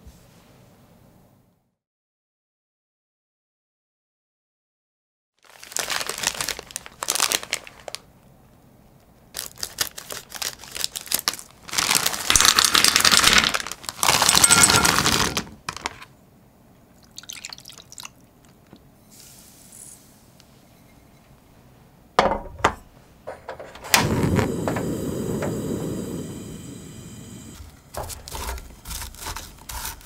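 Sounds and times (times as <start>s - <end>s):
plastic bag crinkling: 5.4s - 8.1s, 9.4s - 16.1s
sugar pouring: 12.2s - 15.3s, 17.0s - 18.1s.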